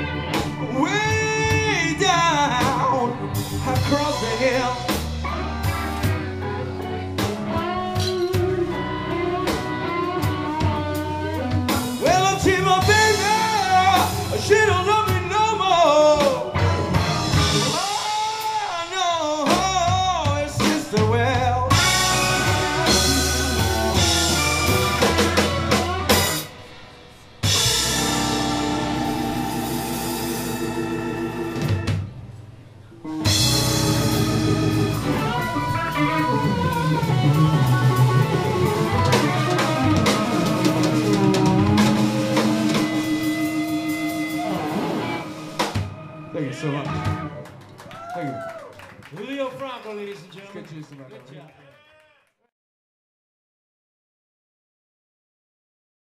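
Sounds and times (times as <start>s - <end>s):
live rock band playing: 0.0s - 47.8s
wavering lead melody: 21.7s - 26.6s, 27.4s - 32.2s, 32.9s - 47.5s.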